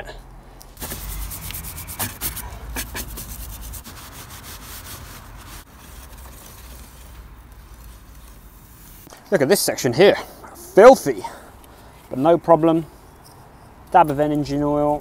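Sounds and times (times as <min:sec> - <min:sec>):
tissue rubbing on chain: 0:00.8 - 0:09.1.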